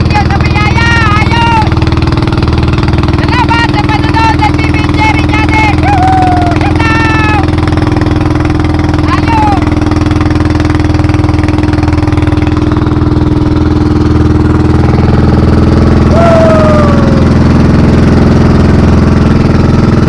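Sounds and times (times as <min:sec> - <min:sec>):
boat engine droning: 0:00.0 - 0:20.0
short falling tone: 0:16.0 - 0:17.5.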